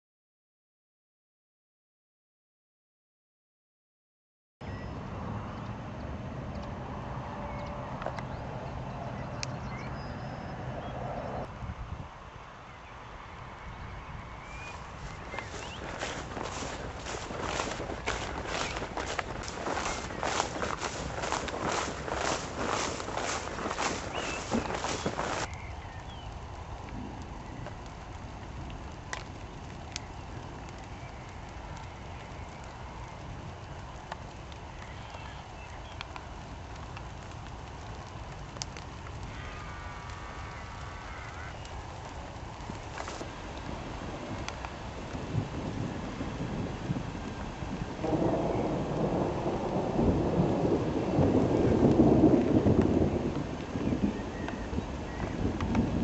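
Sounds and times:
wind buffeting microphone: 13.6 - 34.8, 41.7 - 56.0.

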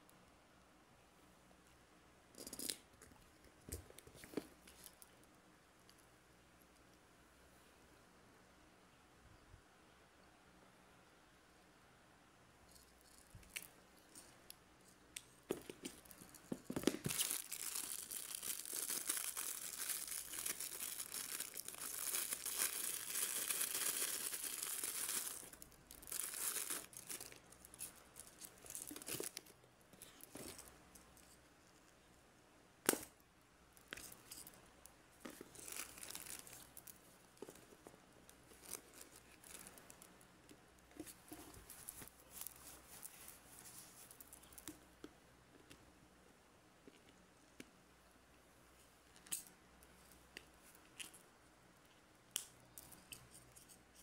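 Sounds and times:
plastic packaging crinkling: 15.7 - 30.7, 35.2 - 37.8, 38.4 - 40.2.

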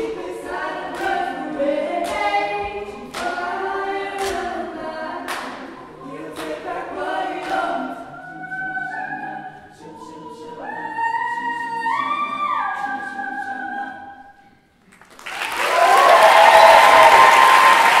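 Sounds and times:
a cappella group singing: 0.0 - 14.7
audience applause: 15.0 - 18.0
audience cheering: 15.2 - 18.0.

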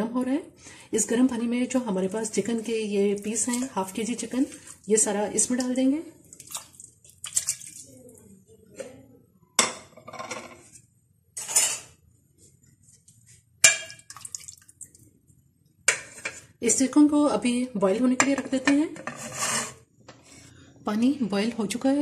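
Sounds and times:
ladle stirring and knocking pot: 2.4 - 4.7, 13.6 - 14.7, 15.8 - 16.9
water splashing in a pot: 2.6 - 8.2, 13.6 - 15.2
metal clinking on a pot: 13.6 - 14.2.

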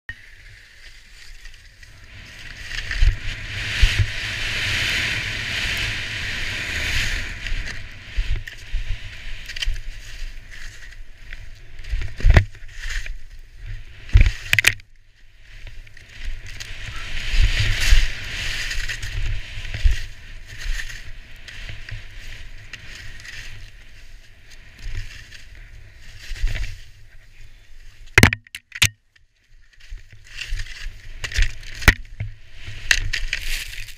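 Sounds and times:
skis scraping through snow: 0.2 - 28.2, 29.6 - 33.9
wind buffeting microphone: 1.9 - 12.8.

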